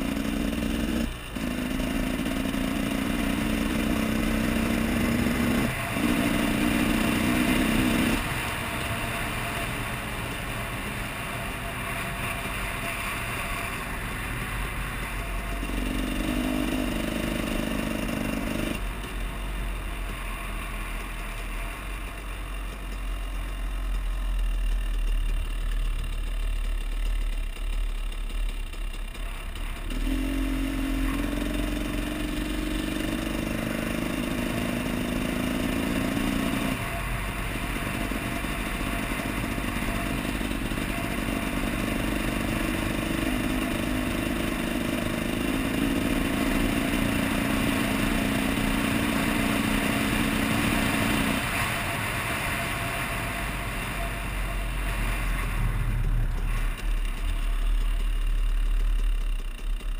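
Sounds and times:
dirt bike engine running: 0:00.0 - 0:59.9.

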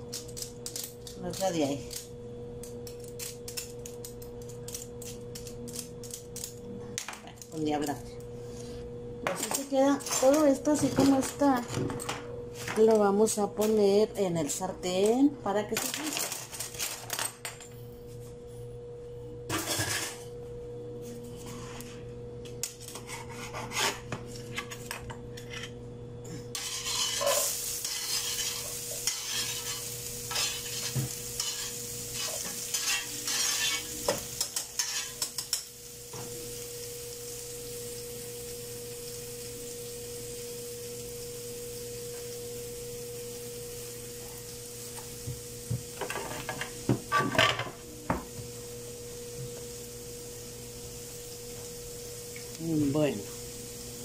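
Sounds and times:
steady low hum: 0:00.0 - 0:54.0
knife clicks and scrapes: 0:00.1 - 0:06.6
utensils clattering against pan: 0:09.3 - 0:12.1, 0:26.6 - 0:35.7
vegetables sizzling in oil: 0:26.6 - 0:54.0.

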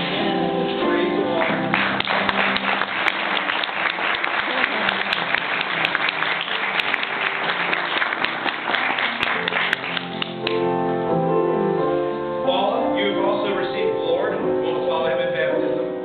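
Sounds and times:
long held keyboard chords: 0:00.0 - 0:16.0
congregation applauding: 0:01.2 - 0:10.6.

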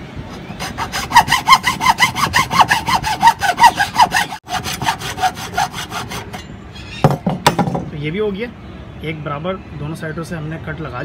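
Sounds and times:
hacksaw cutting bamboo: 0:00.3 - 0:06.5.

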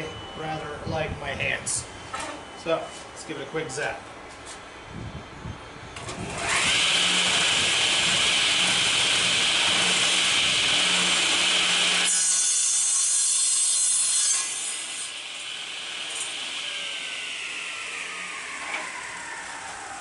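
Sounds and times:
table saw running: 0:06.0 - 0:20.0
wooden dowel cut by saw blade: 0:06.3 - 0:19.1.

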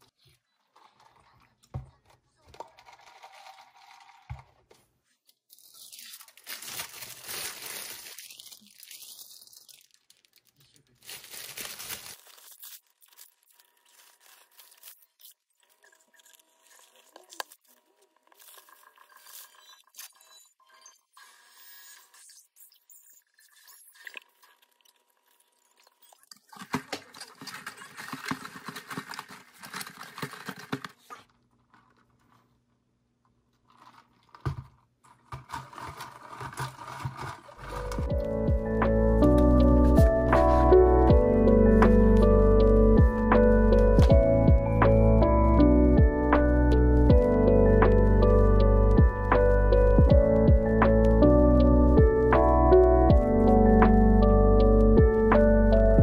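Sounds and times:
paper wrapper crinkling: 0:05.5 - 0:19.5, 0:26.5 - 0:32.7, 0:33.5 - 0:38.4.

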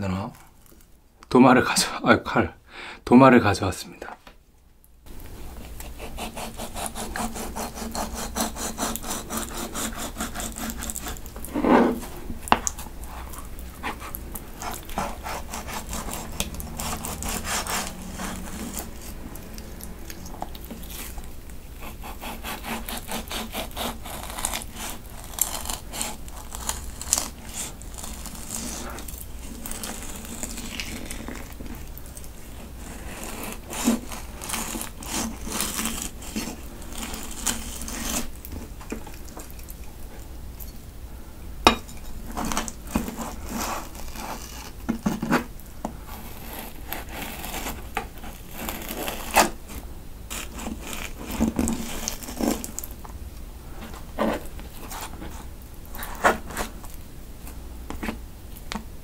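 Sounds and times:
knife sawing through fish: 0:05.8 - 0:12.2, 0:13.0 - 0:21.2, 0:21.8 - 0:31.6, 0:32.4 - 0:38.4, 0:42.4 - 0:45.5, 0:46.2 - 0:49.6, 0:50.3 - 0:52.7.

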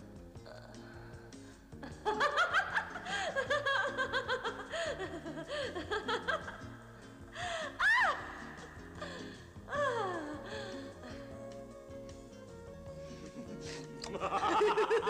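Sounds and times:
background music: 0:00.0 - 0:15.0
woman laughing: 0:01.8 - 0:06.7, 0:07.4 - 0:11.2, 0:13.2 - 0:15.0.

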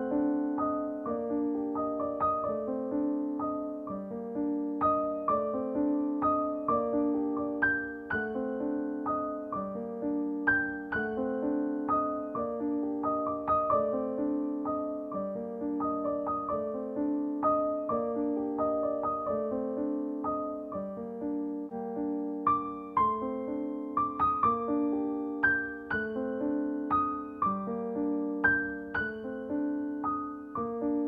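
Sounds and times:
piano music: 0:00.0 - 0:31.0.

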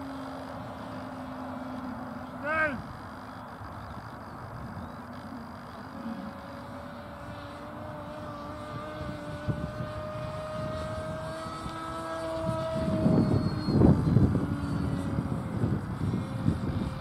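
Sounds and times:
model aeroplane engine overhead: 0:00.0 - 0:17.0
wind buffeting microphone: 0:06.3 - 0:17.0.

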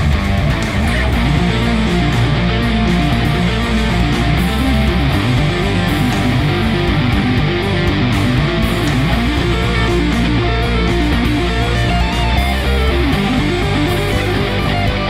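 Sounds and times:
electric guitar instrumental: 0:00.0 - 0:15.0
heavy bass: 0:00.0 - 0:15.0.

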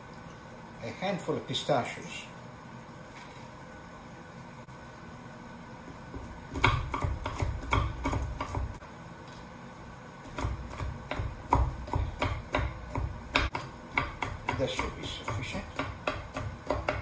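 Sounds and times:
knife chopping on wooden board: 0:06.2 - 0:08.8, 0:10.3 - 0:17.0.

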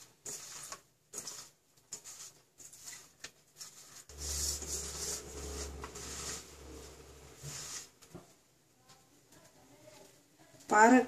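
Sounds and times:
slices rustling on steel plate: 0:00.0 - 0:05.3
low steady hum: 0:04.1 - 0:07.7.

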